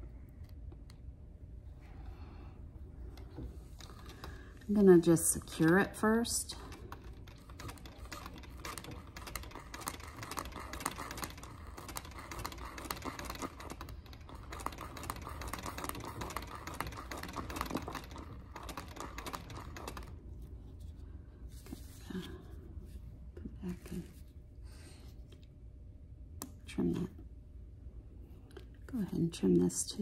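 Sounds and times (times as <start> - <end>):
sewing machine ticking: 6.9 - 20.1.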